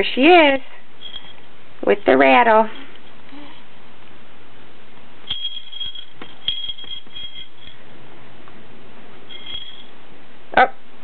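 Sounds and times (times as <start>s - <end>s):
metal rattle jingling: 1.0s - 3.0s, 5.2s - 7.9s, 9.3s - 10.0s.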